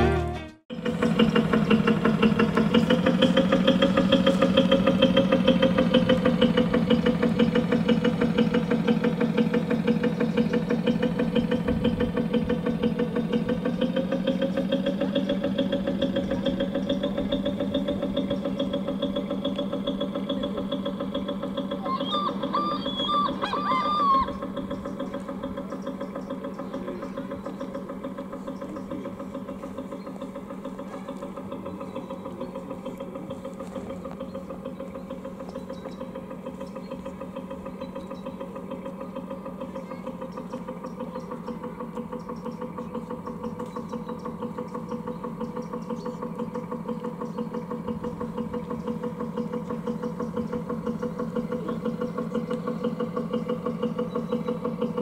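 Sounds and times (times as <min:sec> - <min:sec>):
simulated ship diesel engine: 0:00.0 - 0:55.0
short higher-pitched calls: 0:21.8 - 0:24.4.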